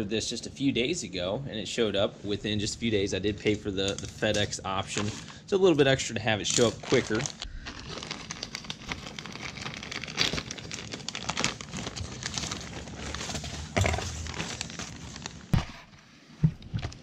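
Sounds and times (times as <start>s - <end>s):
plastic bag crinkling: 6.4s - 15.6s.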